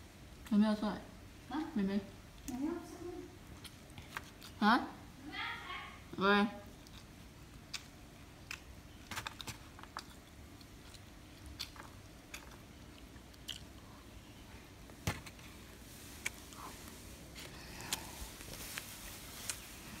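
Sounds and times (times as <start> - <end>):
person chewing food: 3.5 - 4.6, 6.7 - 20.0.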